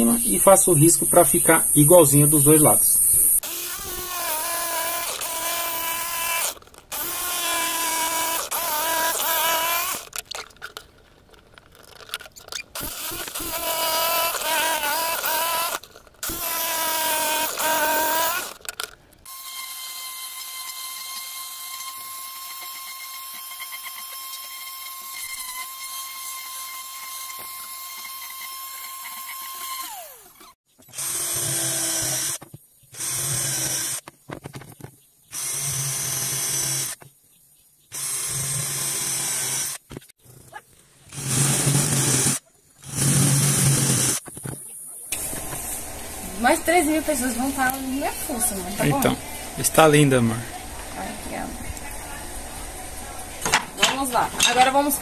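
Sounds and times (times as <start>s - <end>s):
orbital sander whining: 3.0s - 10.2s, 12.8s - 32.4s
drill boring into wood: 3.4s - 10.2s, 12.7s - 32.4s, 33.0s - 34.0s, 35.3s - 37.0s, 37.9s - 39.8s, 41.1s - 44.2s
jigsaw cutting wood: 3.4s - 10.2s, 12.8s - 32.4s, 33.0s - 34.0s, 35.4s - 37.0s, 38.0s - 39.8s, 41.1s - 44.2s.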